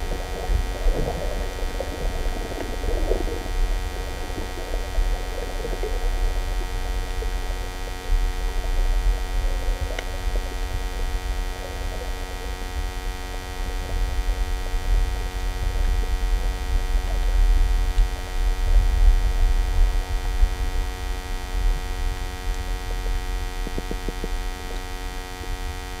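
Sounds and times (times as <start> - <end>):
muffled underwater water rumble: 0.0 - 26.0
faint clicks: 9.9 - 10.2.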